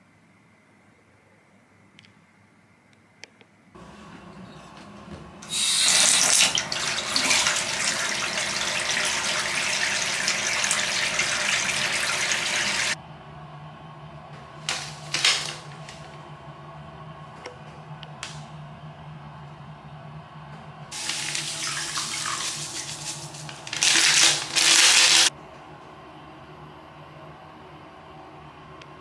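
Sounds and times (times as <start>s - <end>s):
tap running into bathtub: 4.8s - 13.0s, 21.0s - 25.3s
foil sachet crinkling: 22.8s - 25.3s.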